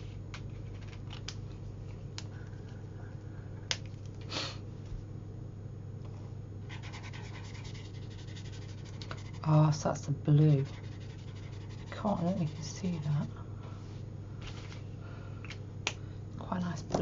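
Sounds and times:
steady low hum: 0:00.0 - 0:17.0
marker nib scratching paper: 0:06.7 - 0:09.5, 0:10.5 - 0:13.3.

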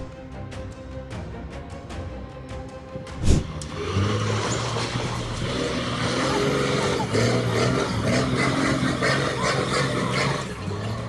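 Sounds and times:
road noise: 0:00.0 - 0:11.0
vehicle engine running: 0:03.0 - 0:11.0.

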